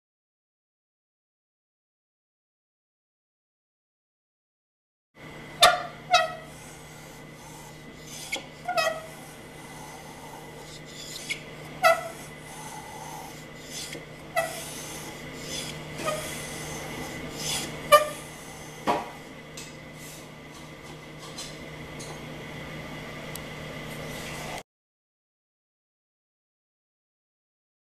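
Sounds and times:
hand plane scraping wood: 5.6s - 19.2s.

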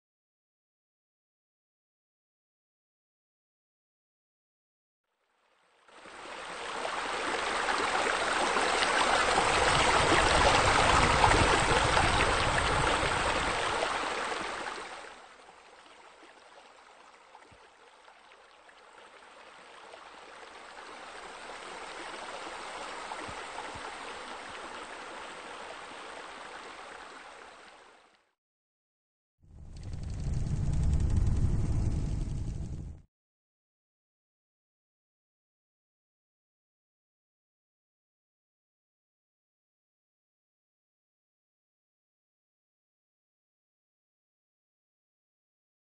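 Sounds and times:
water running and splashing: 6.0s - 28.1s.

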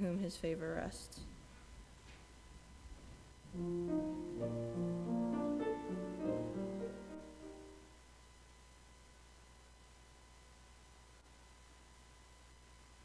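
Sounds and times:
keyboard chords: 3.5s - 7.9s.

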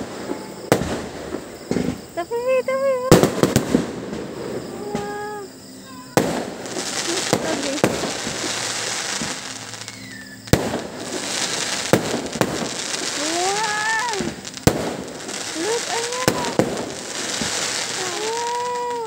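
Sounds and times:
firework shells bursting: 0.0s - 19.0s
fireworks crackling: 0.0s - 19.0s.

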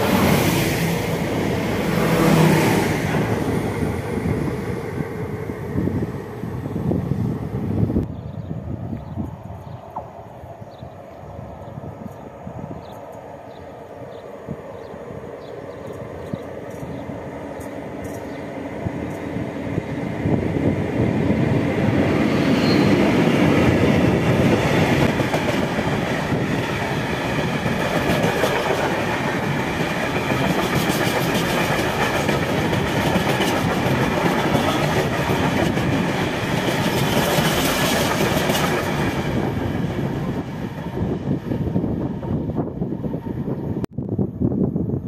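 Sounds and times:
wagon wheels clacking on rails: 24.8s - 39.2s.

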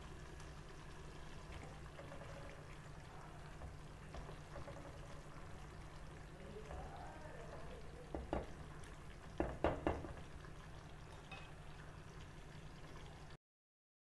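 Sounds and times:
low steady hum: 0.0s - 13.4s
wooden spatula stirring thick gravy: 1.4s - 10.3s
spatula knocking and scraping pan: 7.6s - 8.6s, 9.4s - 10.2s.

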